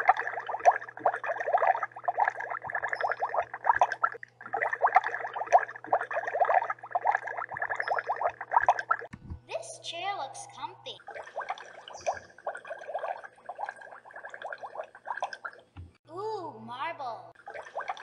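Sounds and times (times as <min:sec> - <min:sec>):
water bubbling: 0:00.0 - 0:09.1, 0:11.0 - 0:16.0, 0:17.4 - 0:18.0.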